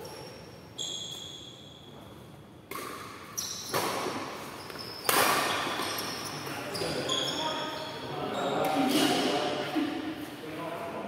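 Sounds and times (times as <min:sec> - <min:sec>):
rackets hitting shuttlecock: 0:02.6 - 0:06.6.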